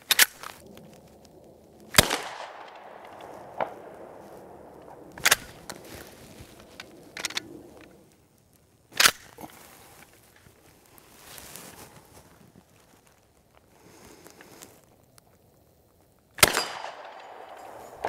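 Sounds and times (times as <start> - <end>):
shotgun shot: 1.9 - 5.7, 16.4 - 18.0.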